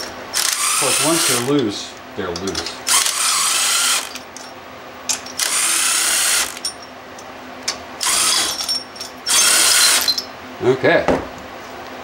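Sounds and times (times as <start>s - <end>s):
cordless power tool spinning: 0.0s - 1.6s, 2.9s - 4.2s, 5.4s - 6.6s, 8.0s - 8.6s, 9.3s - 10.1s.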